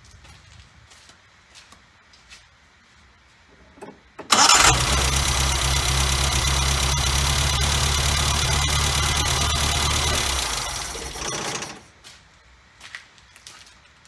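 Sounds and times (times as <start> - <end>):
engine cranking and running: 4.2 - 11.9.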